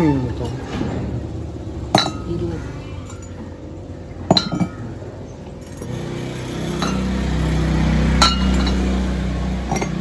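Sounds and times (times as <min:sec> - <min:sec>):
glass jars clinking: 0:01.9 - 0:02.4, 0:04.2 - 0:05.0, 0:06.7 - 0:07.2, 0:08.2 - 0:10.0.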